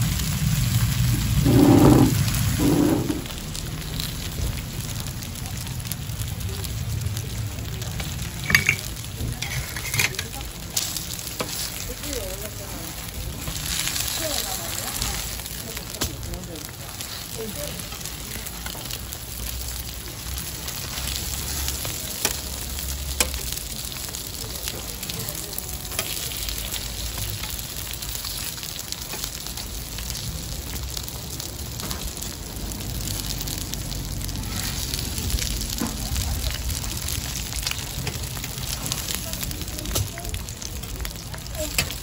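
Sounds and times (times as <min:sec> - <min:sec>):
pancakes sizzling in oil: 0:00.0 - 0:42.0
metal tongs clicking on griddle: 0:22.2 - 0:22.5, 0:23.1 - 0:23.4, 0:41.6 - 0:42.0.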